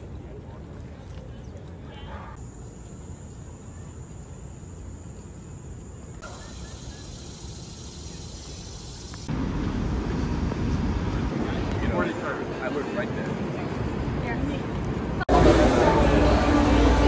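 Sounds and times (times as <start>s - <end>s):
high insect tone: 2.4s - 9.4s.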